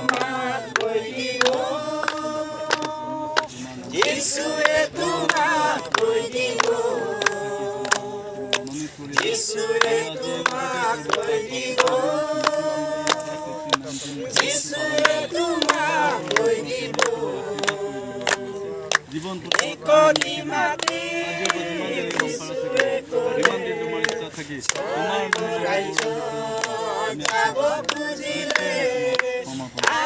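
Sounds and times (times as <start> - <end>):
voices singing worship song: 0.0 - 30.0.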